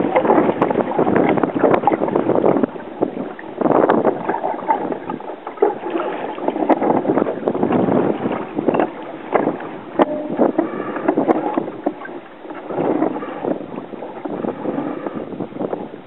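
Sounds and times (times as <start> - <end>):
water rushing along a boat hull: 0.0 - 16.0
wind buffeting the microphone: 0.0 - 16.0
sharp knocks from boat: 3.9 - 15.1.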